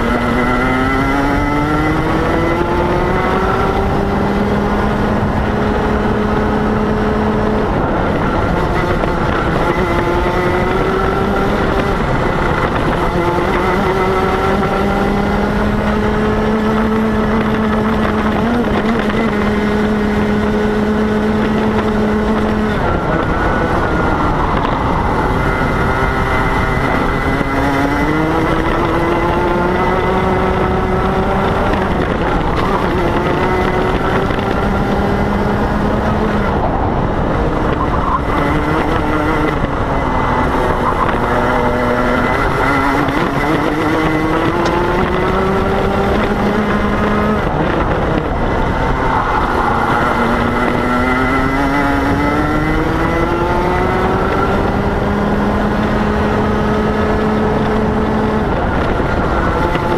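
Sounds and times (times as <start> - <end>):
kart engine racing: 0.0 - 59.9.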